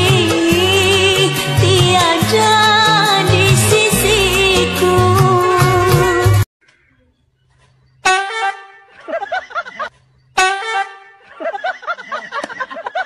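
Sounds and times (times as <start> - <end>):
rapid laughter: 8.6 - 13.0.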